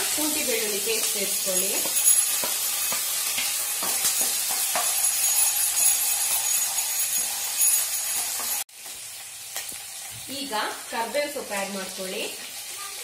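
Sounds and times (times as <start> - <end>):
hot oil sizzling: 0.0 - 13.0.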